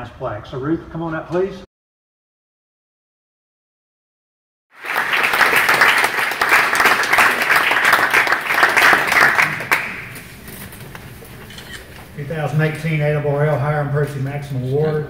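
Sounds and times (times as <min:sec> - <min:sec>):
audience applauding: 0:04.7 - 0:10.3.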